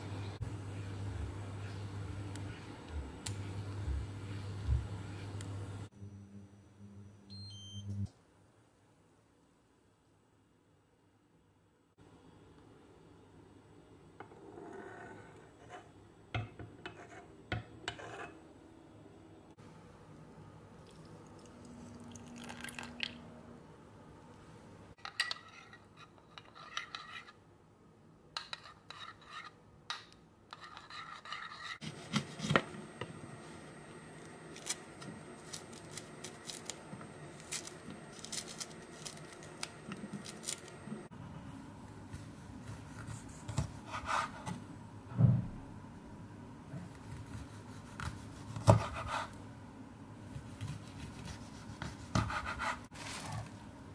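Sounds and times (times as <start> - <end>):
water pouring into ceramic dish: 20.8 - 23.2
mandarin peel rustling and tearing: 34.5 - 41.0.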